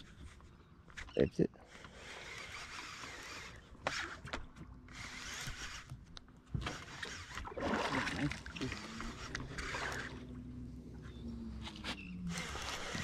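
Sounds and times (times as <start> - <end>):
fishing reel gear whirring: 1.7 - 5.9, 6.7 - 7.5, 8.2 - 13.0.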